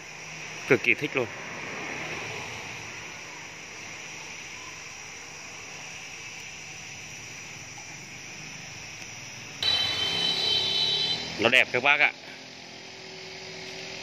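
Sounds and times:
insects chirring: 0.0 - 14.0
high-pitched steady tones: 9.6 - 11.7.

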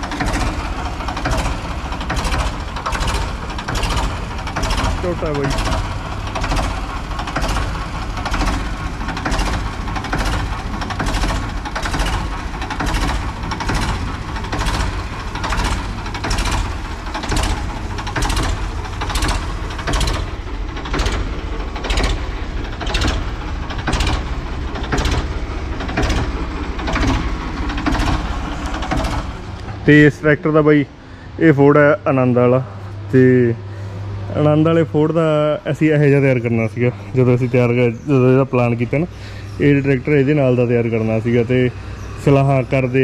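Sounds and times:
sharp engine knock: 0.0 - 29.5
tractor engine rumbling: 0.0 - 43.0.

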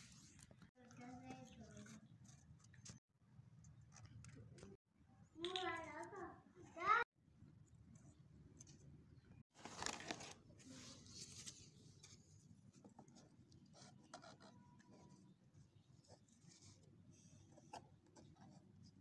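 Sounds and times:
cardboard rustling and scraping: 9.6 - 13.0.

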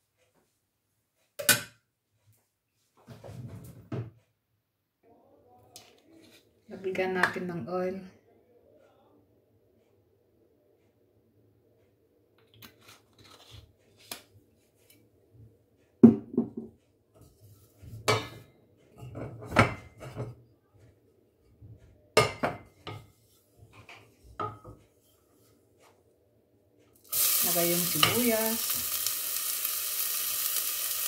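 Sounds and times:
cookware knocking on stove top: 16.0 - 16.8.

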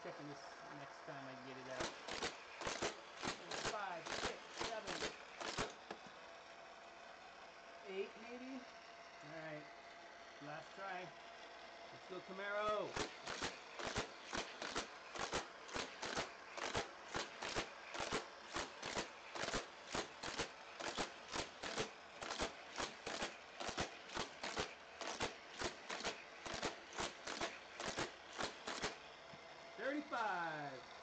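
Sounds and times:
toy car clattering on plastic track: 1.6 - 6.1, 12.6 - 29.1.

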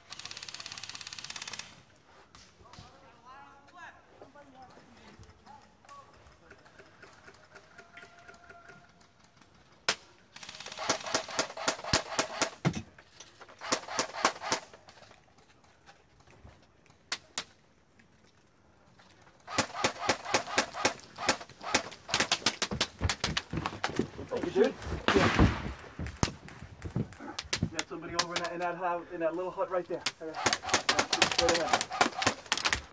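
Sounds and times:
airsoft guns firing: 9.8 - 12.8, 13.6 - 14.8, 19.5 - 28.6, 30.0 - 32.9.

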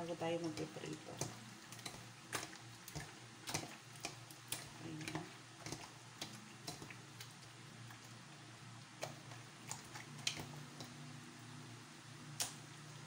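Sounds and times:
wet squelching clicks: 0.4 - 8.1, 9.0 - 11.0, 12.4 - 12.6.

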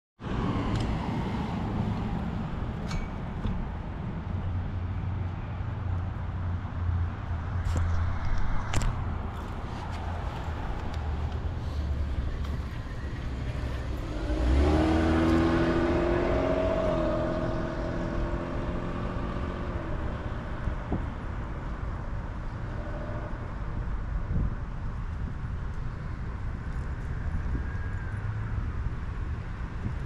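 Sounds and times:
street traffic: 0.2 - 30.0
vehicle engine accelerating: 7.6 - 21.0.

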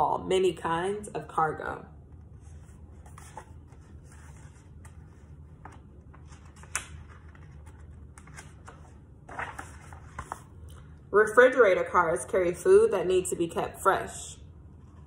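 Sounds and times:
low room hum: 0.0 - 15.0
book pages turning: 2.2 - 10.8.

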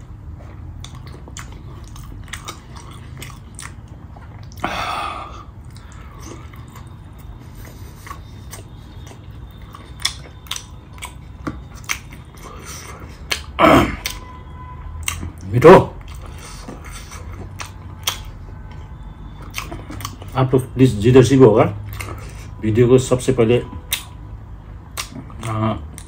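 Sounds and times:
person chewing with lip smacks: 0.4 - 4.7, 5.6 - 14.2, 15.0 - 15.4, 16.0 - 18.8, 19.4 - 20.4, 21.8 - 22.5, 23.9 - 24.2, 24.9 - 26.0.

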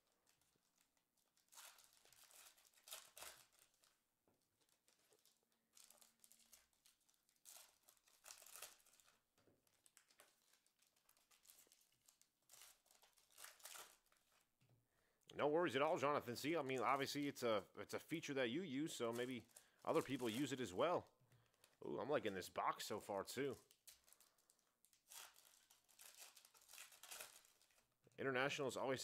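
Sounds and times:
foil wrapper tearing and crinkling: 0.0 - 14.5, 18.9 - 21.0, 23.5 - 27.9.

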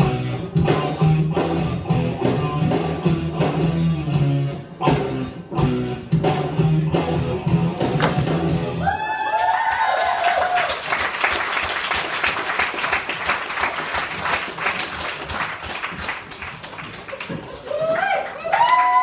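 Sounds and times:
music: 0.0 - 8.9
audience whooping and cheering: 8.6 - 12.6, 17.1 - 19.0
audience applause: 9.0 - 19.0.

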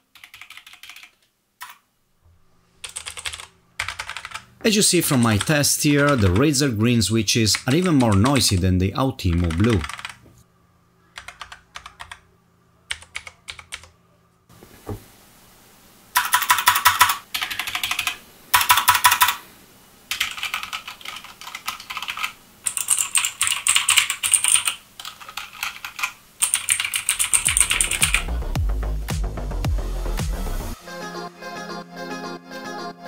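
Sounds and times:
fast typing on mechanical keyboard: 0.1 - 1.8, 2.8 - 4.5, 5.1 - 6.5, 7.5 - 8.6, 9.3 - 10.2, 11.2 - 12.2, 12.9 - 13.9, 16.2 - 19.4, 20.1 - 28.2
electronic music with deep bass: 27.3 - 30.8.

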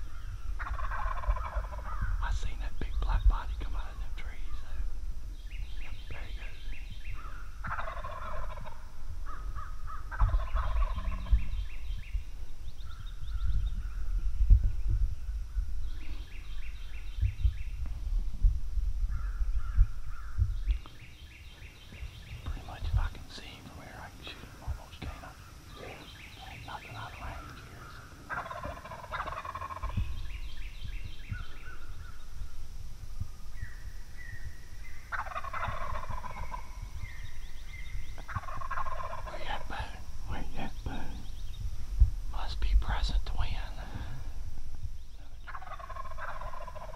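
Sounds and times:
small birds chirping: 0.0 - 18.2, 19.0 - 46.9
low rumble: 0.0 - 46.9
turkey gobbling: 0.6 - 2.2, 7.2 - 11.7, 25.7 - 30.0, 35.1 - 37.4, 38.2 - 40.0, 45.4 - 46.9.

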